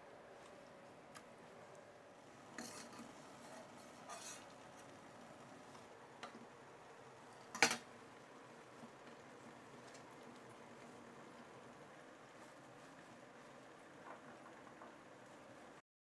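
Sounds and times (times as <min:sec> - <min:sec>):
kitchenware clatter: 0:07.4 - 0:07.9.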